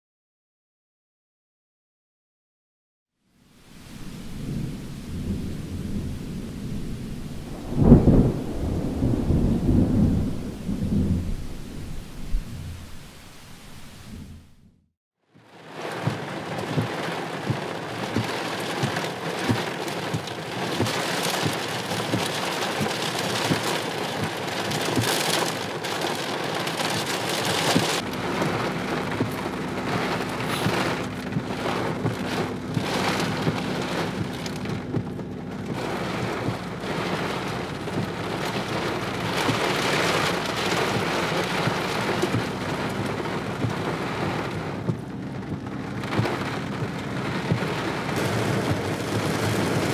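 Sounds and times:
heavy rain on car roof: 0:03.6 - 0:14.4, 0:15.3 - 0:49.9
low steady hum: 0:03.6 - 0:14.8.

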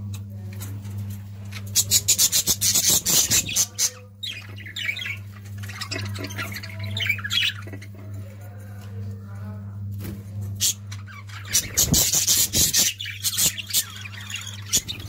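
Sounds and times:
budgerigars squawking and chirping: 0:01.6 - 0:07.9, 0:10.6 - 0:15.0.

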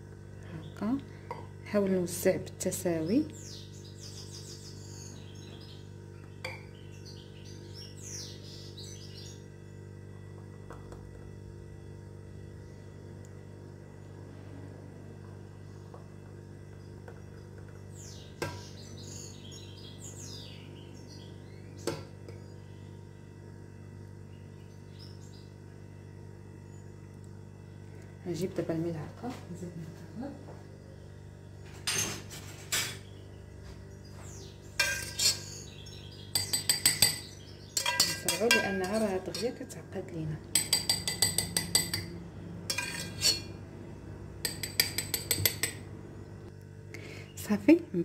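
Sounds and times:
steady low hum: 0:00.0 - 0:48.0
metal spoon scraping a pot: 0:34.8 - 0:35.6, 0:37.8 - 0:39.6, 0:42.7 - 0:43.6
spoon clinking on glass tumblers: 0:37.8 - 0:39.6, 0:42.7 - 0:43.5.

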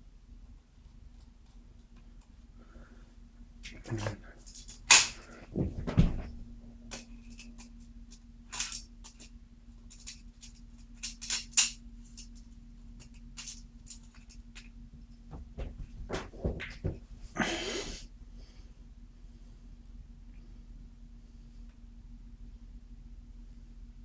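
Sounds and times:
faint steady hum: 0:00.0 - 0:24.0
plastic parts clicking and scraping: 0:08.5 - 0:09.3, 0:13.0 - 0:14.7.

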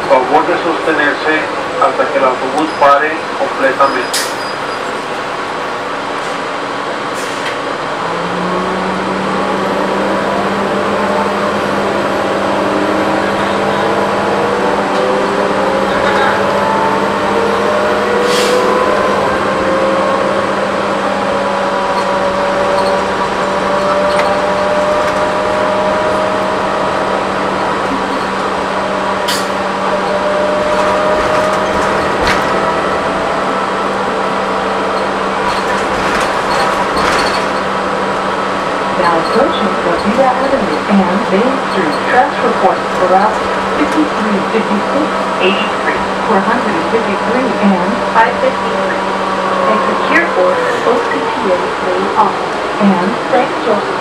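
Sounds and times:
steady engine hum: 0:05.0 - 0:54.0
bus body knocks and rattles: 0:30.6 - 0:32.8, 0:35.4 - 0:37.8.

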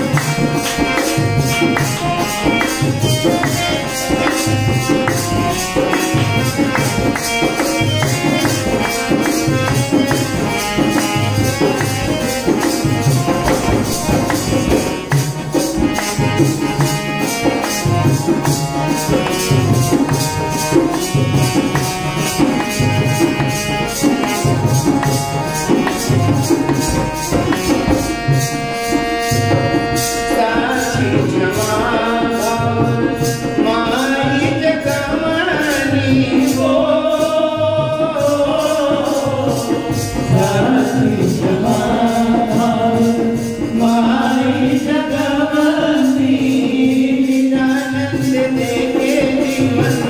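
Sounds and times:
instrumental melody: 0:00.0 - 0:35.0
hand drum beat: 0:00.0 - 0:50.0
person singing: 0:29.8 - 0:50.0.

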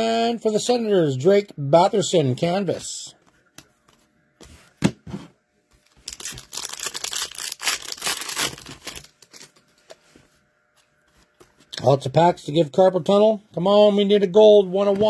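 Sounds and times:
foil wrapper tearing and crinkling: 0:05.9 - 0:09.6.

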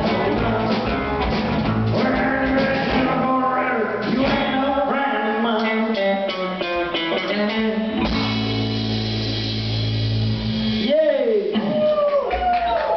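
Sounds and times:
person singing: 0:00.0 - 0:08.0
live rock band playing: 0:00.0 - 0:11.9.

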